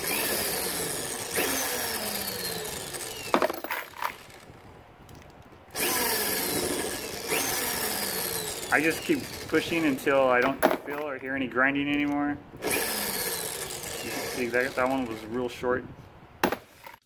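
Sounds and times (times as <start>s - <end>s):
power drill whirring: 0.0s - 4.6s, 5.7s - 10.3s, 12.0s - 15.4s.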